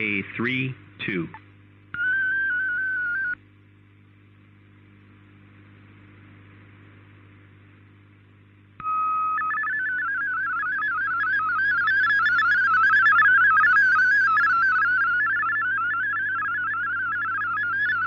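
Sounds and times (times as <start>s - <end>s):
low hum: 0.0s - 18.0s
warbling digital data tones: 8.8s - 18.0s.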